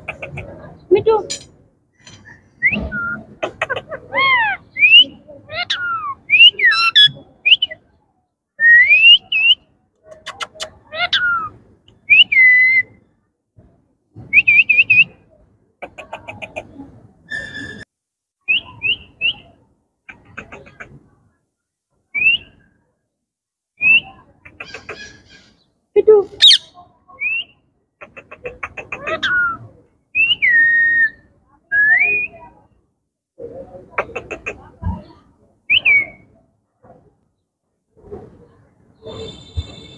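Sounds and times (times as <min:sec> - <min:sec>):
soft bird chatter: 0:00.0 - 0:08.2, 0:08.9 - 0:13.2, 0:15.8 - 0:21.4, 0:23.8 - 0:31.3, 0:33.4 - 0:39.9
parakeets whistling: 0:26.4 - 0:26.7.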